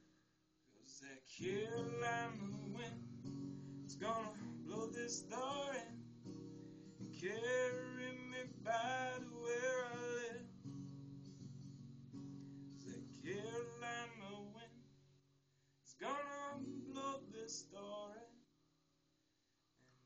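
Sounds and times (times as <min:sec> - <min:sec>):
man singing: 0:00.8 - 0:03.0, 0:03.9 - 0:06.0, 0:07.1 - 0:10.5, 0:12.8 - 0:14.8, 0:15.9 - 0:18.4
acoustic guitar strumming: 0:01.4 - 0:15.0, 0:16.0 - 0:18.1.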